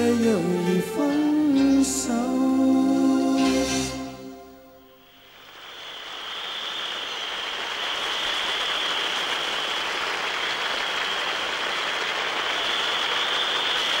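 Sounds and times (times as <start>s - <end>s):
singing and music: 0.0s - 4.9s
crowd applauding and cheering: 5.3s - 14.0s.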